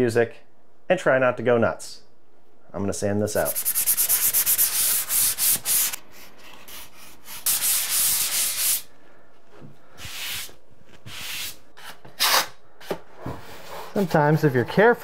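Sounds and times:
hand sanding drywall compound: 3.4s - 8.9s, 10.0s - 12.5s.

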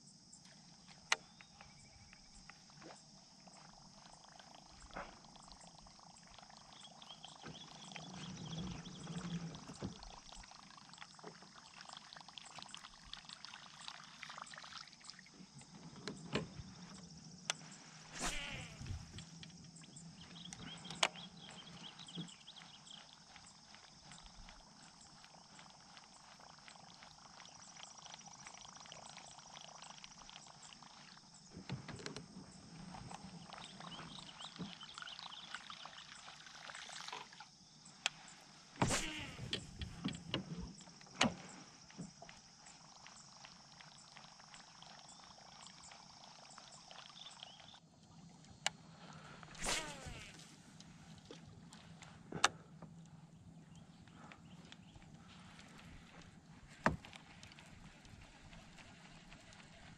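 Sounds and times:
high insect drone: 0.0s - 59.9s.

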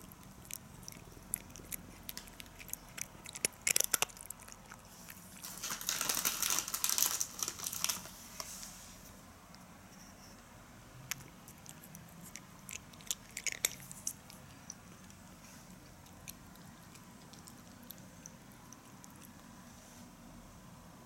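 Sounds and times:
cat crunching dry kibble: 0.0s - 8.2s, 11.1s - 19.5s.

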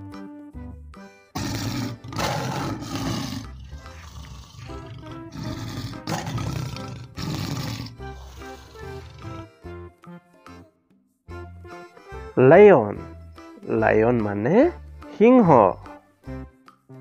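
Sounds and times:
light background music: 0.0s - 17.0s
lion roaring: 1.4s - 9.5s.

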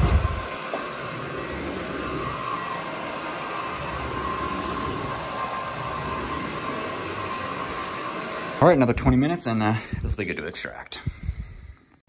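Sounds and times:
carpet machine motor whine: 0.0s - 9.2s.

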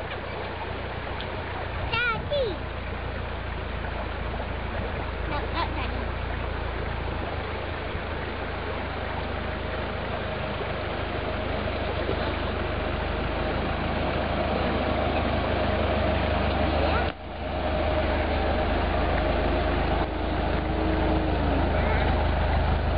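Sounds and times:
vehicle engine at low revs: 0.0s - 22.9s.

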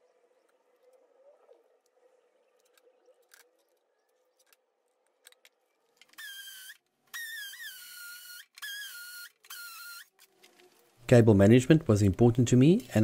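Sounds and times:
cordless drill whining: 6.0s - 10.2s.

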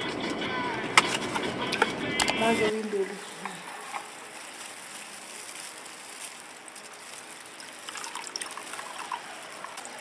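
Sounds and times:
water trickling into plastic cups: 3.4s - 10.0s.

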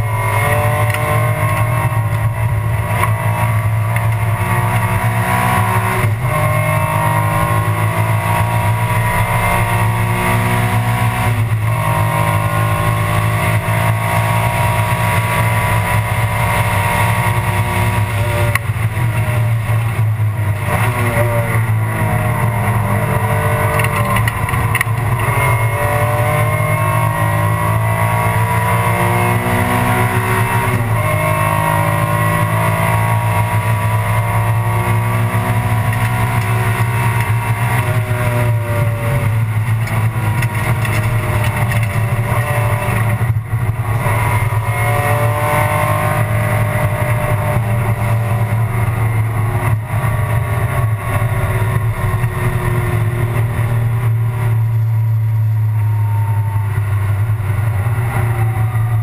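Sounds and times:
race car engine accelerating: 0.0s - 59.0s.

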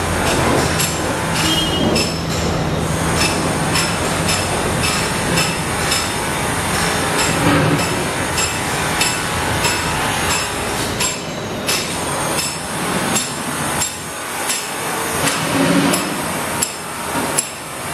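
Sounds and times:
steady background noise: 0.0s - 17.9s
hammer blows knocking: 0.2s - 2.6s.

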